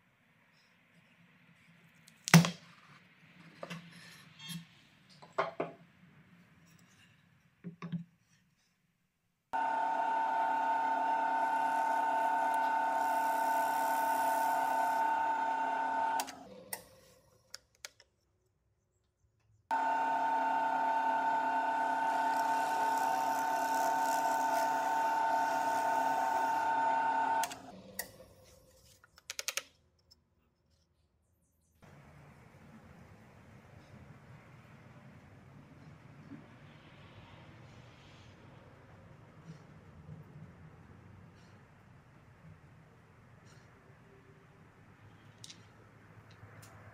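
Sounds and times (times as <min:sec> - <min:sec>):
power tool motor whining: 0:09.6 - 0:16.8, 0:19.7 - 0:28.0.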